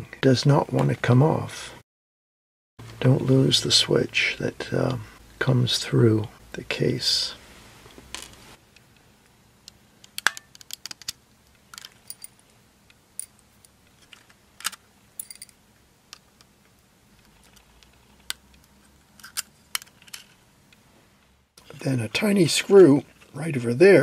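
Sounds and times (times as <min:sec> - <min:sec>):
small plastic and metal parts clicking: 0:10.0 - 0:12.3, 0:13.9 - 0:15.5, 0:17.2 - 0:20.4.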